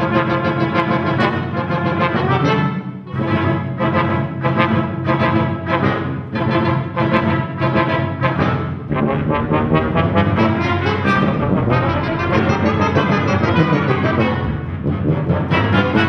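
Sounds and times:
trombone short repeated notes: 0.0s - 16.0s
deep low tuba note: 6.4s - 16.0s.

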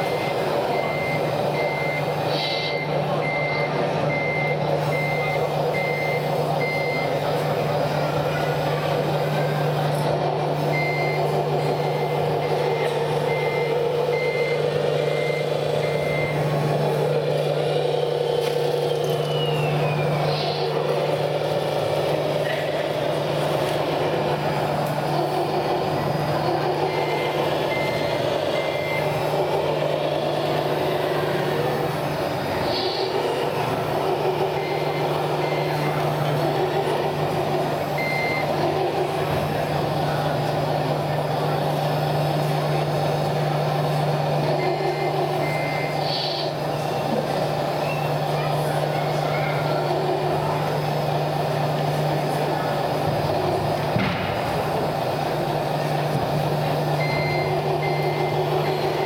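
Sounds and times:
reversing beeper: 0.0s - 7.6s, 10.6s - 39.1s, 44.4s - 47.1s, 56.9s - 59.0s
crowd murmur: 0.0s - 59.0s
low engine hum: 0.0s - 59.0s.

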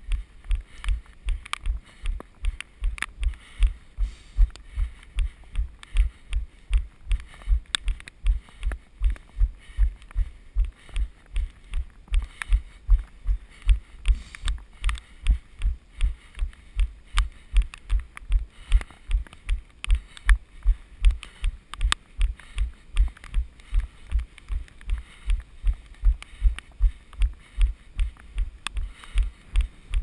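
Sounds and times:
faint short clicks: 0.8s - 3.4s.

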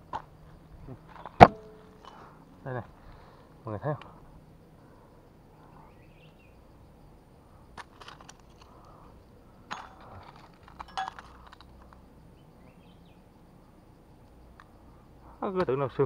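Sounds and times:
rocks knocking together: 9.7s - 11.7s.

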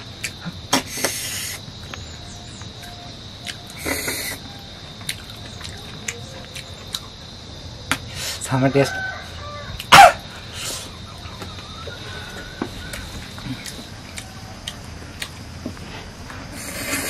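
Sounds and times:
small clicks of eating: 5.0s - 7.1s
chicken squawk: 8.8s - 10.9s.

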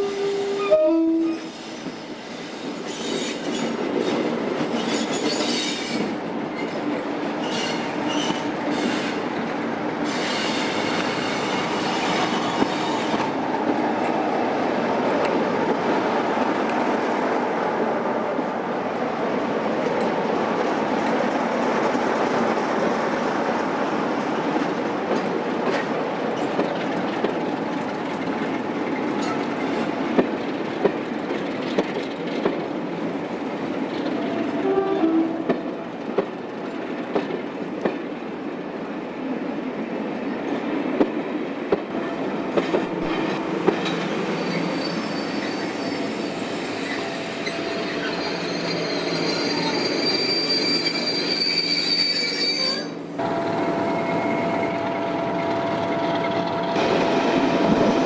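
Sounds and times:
diesel locomotive engines under load: 0.0s - 18.5s, 40.4s - 58.0s
train coaches rumbling: 0.0s - 58.0s
high-pitched wheel squeal: 44.4s - 56.8s.

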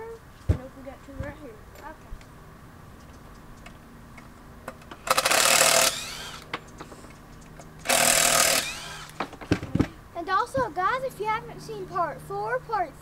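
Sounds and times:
power drill driving screws: 5.0s - 6.5s, 7.8s - 9.2s.

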